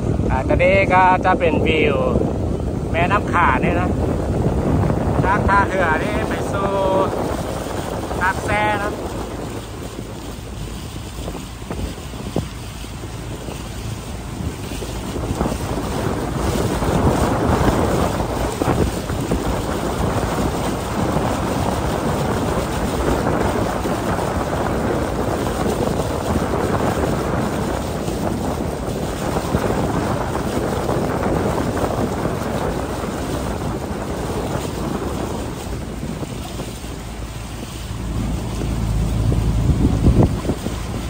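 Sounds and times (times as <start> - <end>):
water rushing along boat hull: 0.0 - 41.0
wind buffeting microphone: 0.0 - 41.0.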